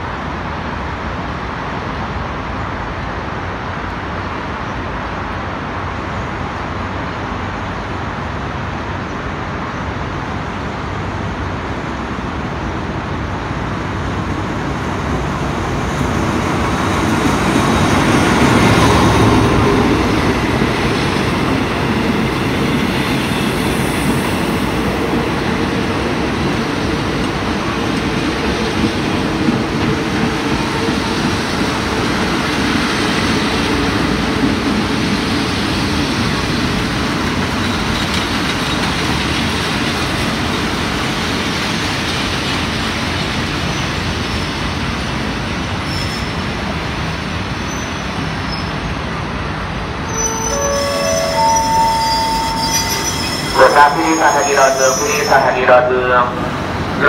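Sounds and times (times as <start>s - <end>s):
diesel locomotive passing: 0.0s - 57.0s
train carriages rumbling: 13.1s - 57.0s.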